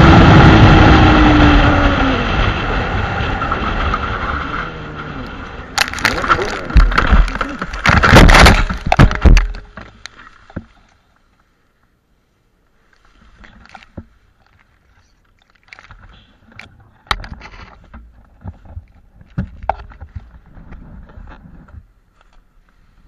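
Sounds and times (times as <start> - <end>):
motorcycle crashing: 0.0 - 10.6
grass rustling: 3.7 - 23.0.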